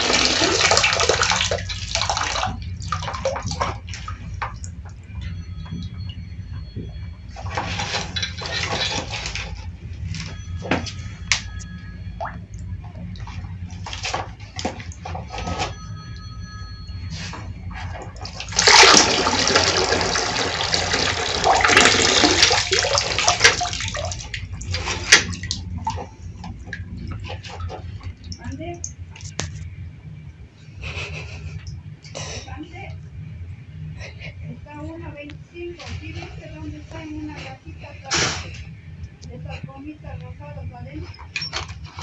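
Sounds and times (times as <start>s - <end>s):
water splashing into plastic tub: 0.0s - 4.7s, 18.2s - 29.0s
steady low hum: 0.0s - 42.0s.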